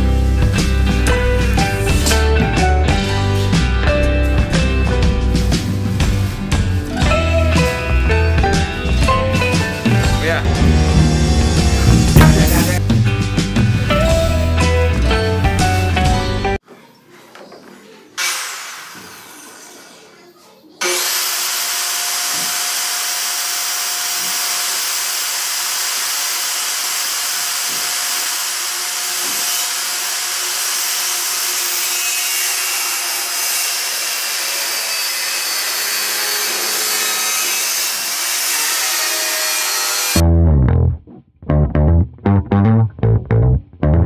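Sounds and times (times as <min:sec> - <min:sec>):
circular saw cutting plywood: 0:09.6 - 0:12.8, 0:18.2 - 0:20.2, 0:20.8 - 0:40.2.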